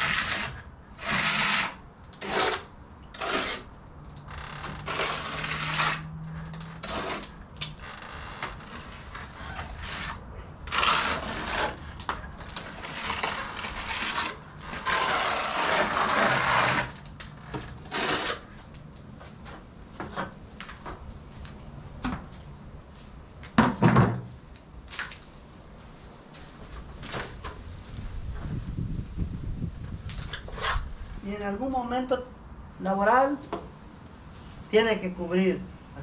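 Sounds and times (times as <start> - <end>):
trowel scraping stucco: 0.0 - 3.8, 4.4 - 7.8, 8.4 - 18.8, 30.3 - 31.0.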